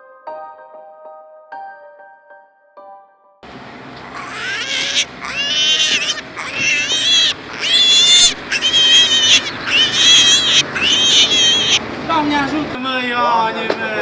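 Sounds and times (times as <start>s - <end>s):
piglets squealing: 4.1s - 11.8s.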